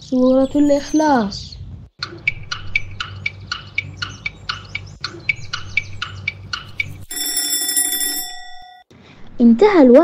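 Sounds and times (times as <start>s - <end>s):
clock ticking: 2.0s - 8.3s.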